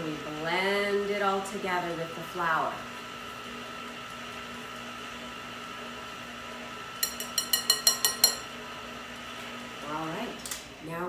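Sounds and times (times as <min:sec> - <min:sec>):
whisk clinking on bowl rim: 0:07.0 - 0:08.5.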